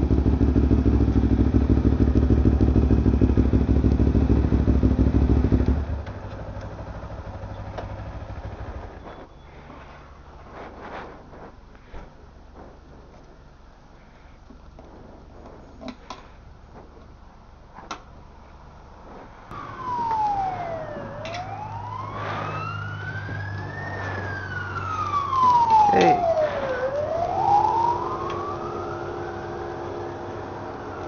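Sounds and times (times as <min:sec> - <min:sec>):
emergency siren wailing: 0:19.5 - 0:31.0.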